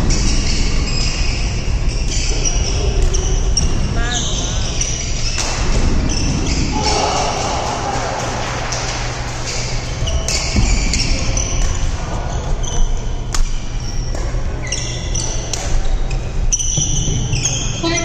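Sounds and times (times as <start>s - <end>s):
sneakers squeaking on court: 0.0s - 7.5s, 9.4s - 18.0s
low hall hum: 0.0s - 18.0s
rackets hitting shuttlecock: 5.1s - 12.1s, 13.2s - 14.5s, 15.2s - 16.0s.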